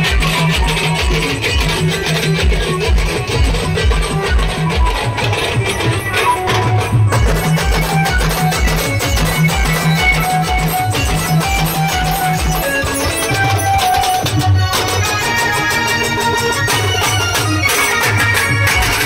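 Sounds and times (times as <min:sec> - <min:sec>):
drums driving beat: 0:00.0 - 0:19.0
street band playing: 0:00.0 - 0:19.0.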